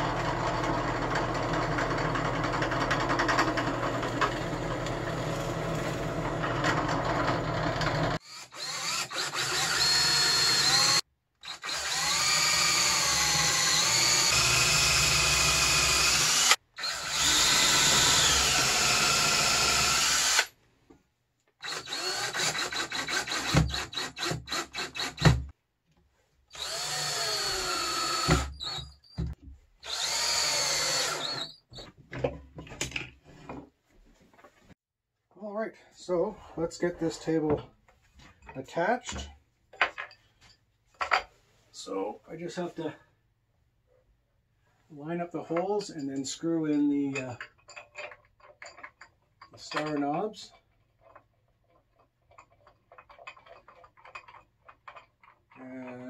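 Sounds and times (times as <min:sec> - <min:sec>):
drill press running: 0:00.0 - 0:11.0, 0:11.7 - 0:20.5, 0:26.6 - 0:28.8
cordless drill running: 0:00.0 - 0:20.5, 0:21.6 - 0:25.4, 0:26.5 - 0:28.9, 0:29.8 - 0:31.6.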